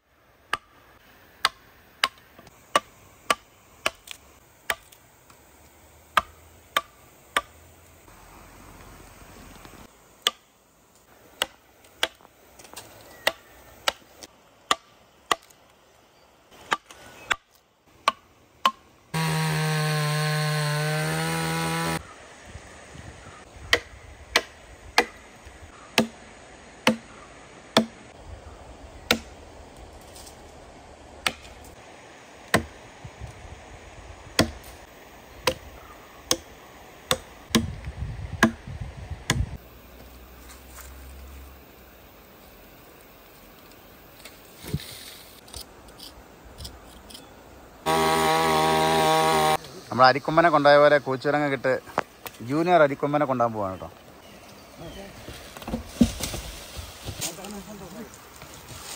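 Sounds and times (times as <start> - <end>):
mallet striking chisel into wood: 38.4 - 38.6.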